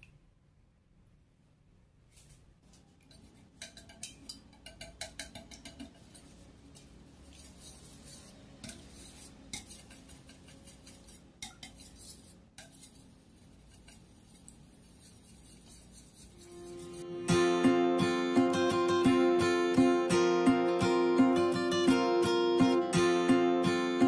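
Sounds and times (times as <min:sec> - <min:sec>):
whisk clicking in metal bowl: 0:03.0 - 0:16.4.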